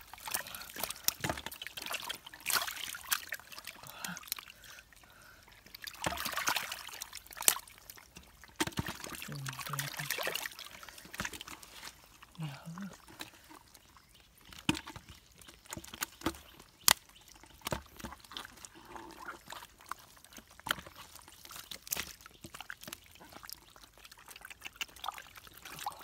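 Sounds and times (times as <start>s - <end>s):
hands splashing in muddy water: 0.0s - 4.6s, 5.7s - 13.6s
fish thrashing in water: 0.0s - 26.0s.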